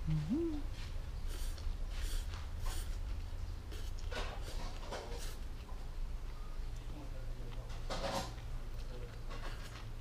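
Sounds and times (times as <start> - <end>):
mouth sound: 0.0 - 1.5
steady low hum: 0.0 - 4.0
quiet chewing: 0.0 - 10.0.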